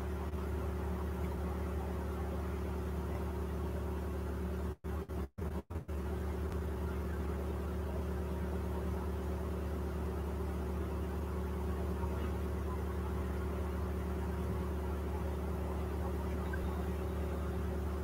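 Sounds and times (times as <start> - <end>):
low electrical hum: 5.9 - 18.0.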